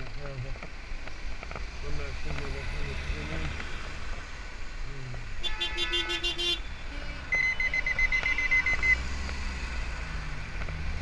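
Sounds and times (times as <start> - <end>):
high-pitched electronic beeping: 7.3 - 9.1.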